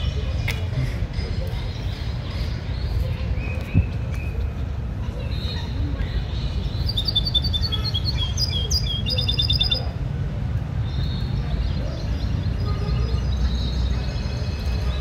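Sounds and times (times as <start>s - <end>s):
finches chirping and twittering: 5.3s - 9.9s.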